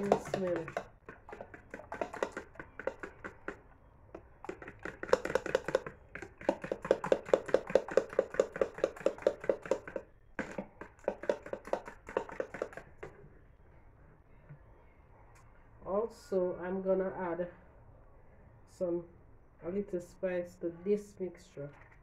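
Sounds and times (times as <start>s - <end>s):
eggs beaten with metal utensil: 0.0s - 13.2s.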